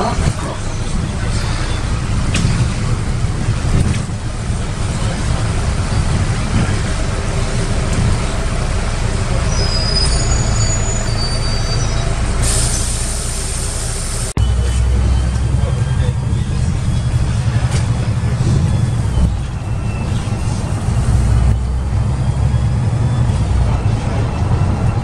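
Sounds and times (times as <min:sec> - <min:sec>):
bus diesel engine drone: 0:00.0 - 0:25.0
high squeaks: 0:09.4 - 0:12.8
air hiss: 0:12.4 - 0:14.3.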